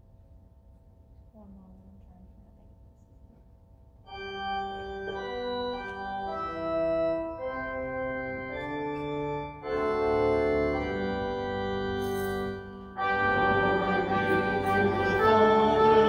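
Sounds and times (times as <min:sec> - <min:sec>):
organ playing slow chords: 0:04.0 - 0:16.0.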